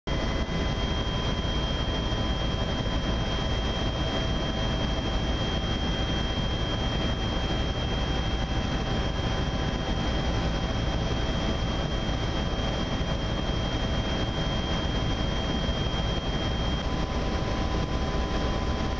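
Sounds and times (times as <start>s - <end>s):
helicopter engine and rotor noise: 0.1s - 18.9s.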